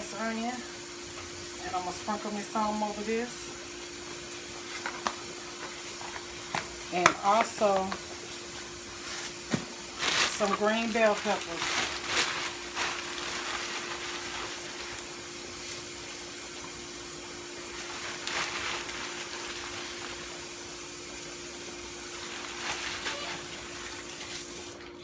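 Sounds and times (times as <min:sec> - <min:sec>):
plastic bag rustling: 0:08.6 - 0:16.2, 0:17.6 - 0:20.6, 0:21.9 - 0:24.6.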